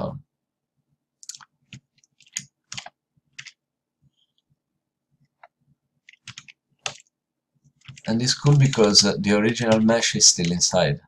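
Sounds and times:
keyboard and mouse clicks: 1.2s - 3.6s, 5.2s - 7.1s, 7.8s - 10.6s.

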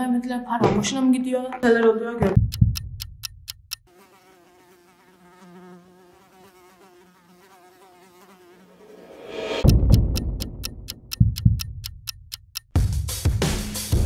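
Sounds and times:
faint insect buzzing: 3.7s - 9.4s.

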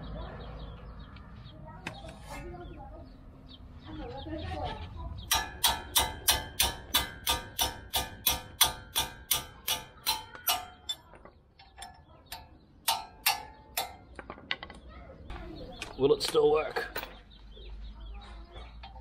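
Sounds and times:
hammer blows ringing: 5.3s - 11.1s, 11.7s - 14.2s.

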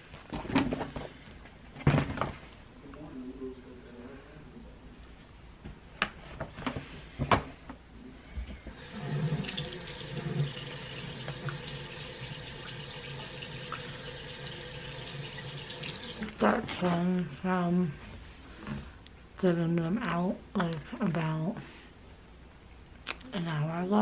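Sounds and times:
tap running into sink: 8.8s - 16.3s.

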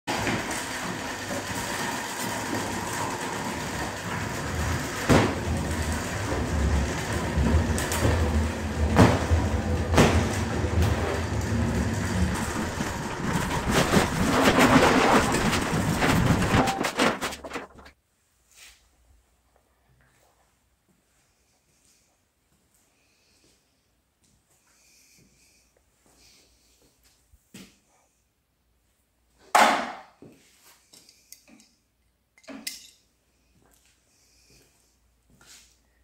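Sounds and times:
garage door rattling open: 0.1s - 17.9s.

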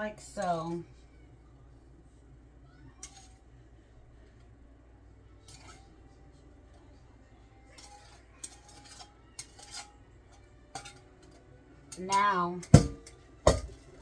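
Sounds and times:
low steady hum: 0.0s - 14.0s
utensil scraping metal bowl: 3.0s - 3.4s, 5.4s - 6.0s, 7.6s - 13.8s.

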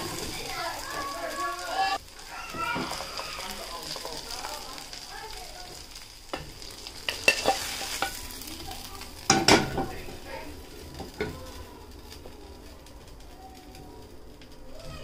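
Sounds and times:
oil sizzling in a skillet: 0.0s - 15.0s
utensil knocking and scraping pan: 6.3s - 8.3s, 9.2s - 10.3s.

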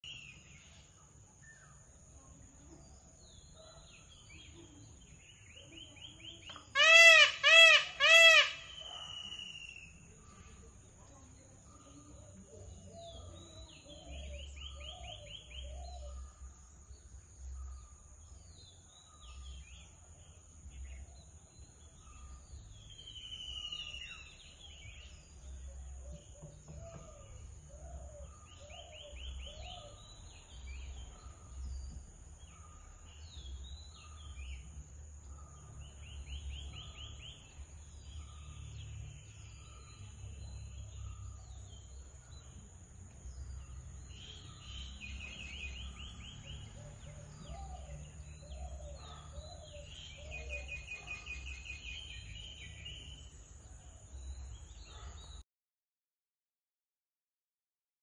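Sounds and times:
small birds chirping: 0.0s - 55.4s
peacock calling loudly: 6.7s - 9.4s.

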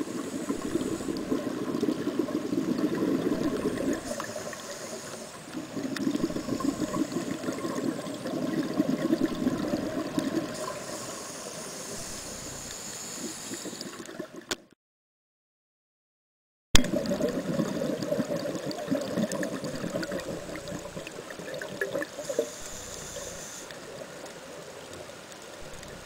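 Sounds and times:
regulator inhale hiss: 0.0s - 2.6s, 3.4s - 8.4s, 10.3s - 14.1s, 22.1s - 24.0s
exhaled bubbles underwater: 0.0s - 11.0s, 16.8s - 24.4s.

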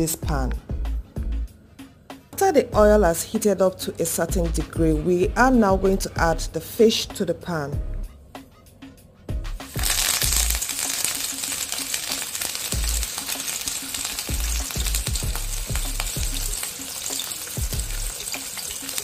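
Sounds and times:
fish sizzling in hot oil: 9.6s - 19.0s.

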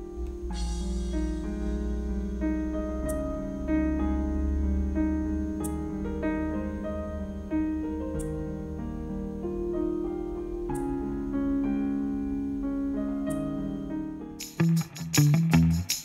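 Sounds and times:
sustained low bass: 0.0s - 10.0s, 14.5s - 16.0s
gentle piano melody: 0.0s - 16.0s.

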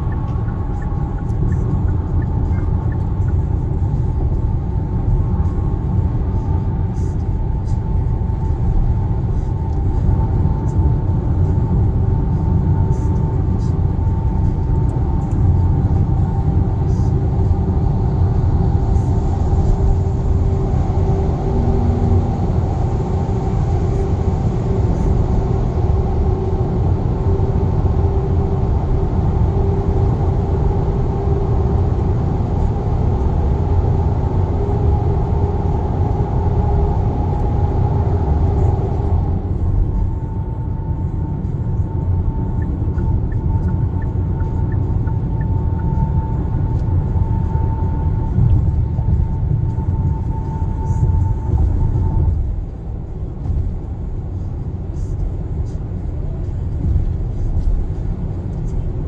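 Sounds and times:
road and tyre rumble: 0.0s - 59.0s.

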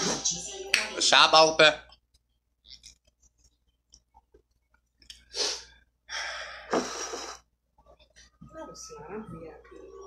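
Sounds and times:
person breathing: 5.3s - 7.5s.

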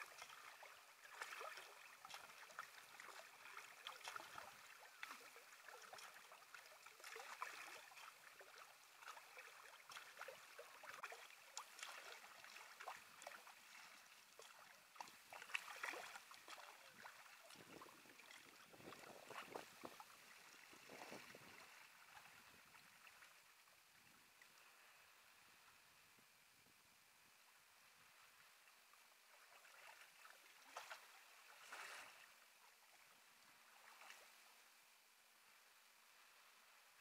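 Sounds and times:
paddles splashing in water: 0.0s - 23.5s, 29.3s - 34.4s.

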